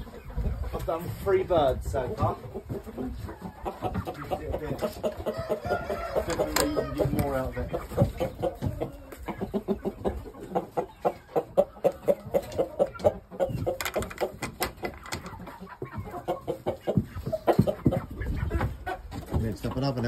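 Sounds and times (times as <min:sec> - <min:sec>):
chickens clucking: 0:00.0 - 0:20.0.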